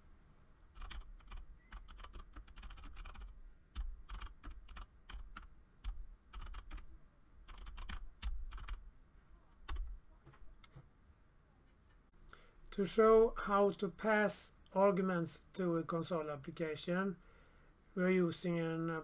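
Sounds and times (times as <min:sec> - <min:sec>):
typing on computer keyboard: 0:00.8 - 0:06.9, 0:07.5 - 0:08.8.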